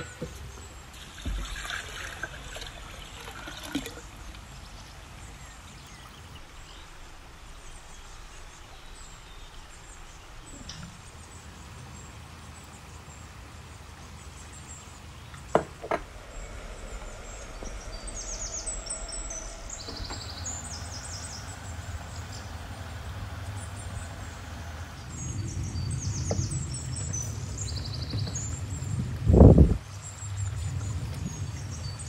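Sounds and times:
low steady rumble: 0.0 - 32.0
small birds chirping: 3.9 - 32.0
sharp knocks: 15.5 - 23.5.

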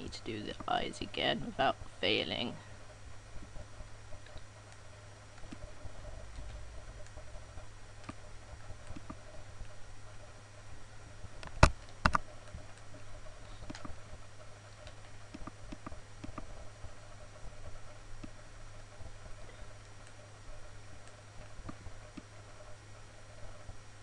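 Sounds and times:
low steady hum: 0.0 - 24.0
computer mouse clicking: 3.5 - 7.4, 8.0 - 9.8, 11.4 - 14.0, 14.7 - 16.6, 18.2 - 18.4, 21.0 - 22.8.

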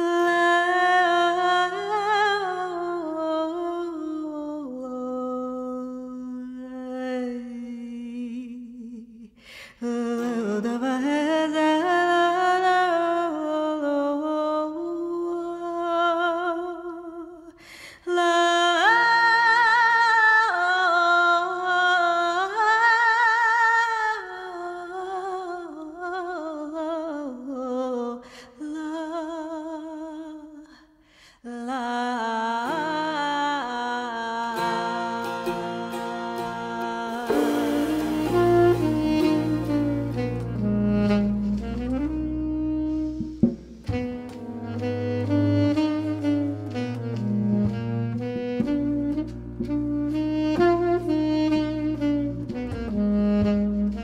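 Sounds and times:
woman singing folk melody: 0.0 - 30.8, 31.4 - 40.6
soft plucked lute accompaniment: 34.5 - 40.7.

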